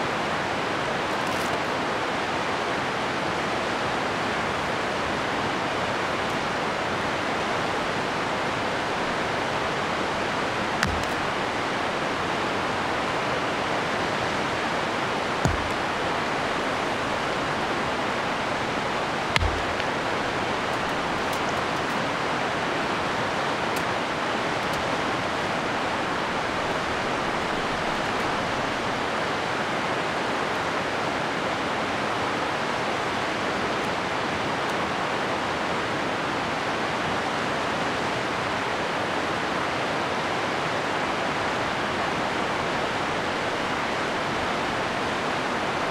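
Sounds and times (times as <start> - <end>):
river rapids rushing: 0.0 - 45.9
short knocks: 15.4 - 17.5, 19.2 - 21.6.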